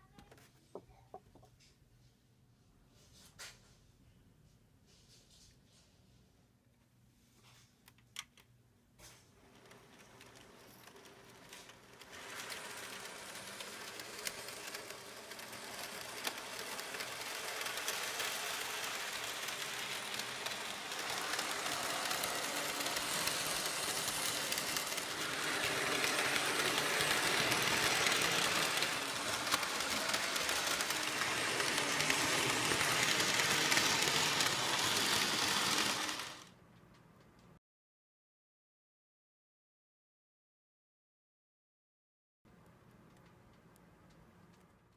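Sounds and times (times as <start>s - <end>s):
model train whirring: 9.0s - 36.6s.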